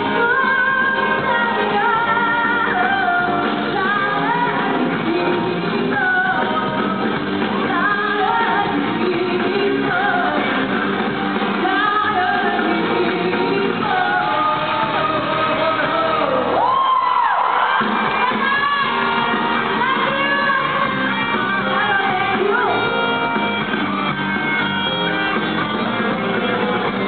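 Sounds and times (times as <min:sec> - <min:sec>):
woman singing into microphone: 0:00.0 - 0:10.9, 0:11.5 - 0:23.3
live pop band: 0:00.0 - 0:27.0.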